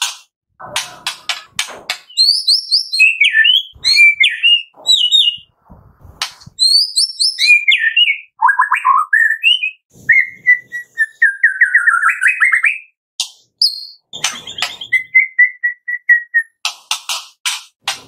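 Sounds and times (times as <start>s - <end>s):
bird singing whistled phrases: 2.1s - 5.5s, 6.6s - 13.0s, 13.6s - 16.6s.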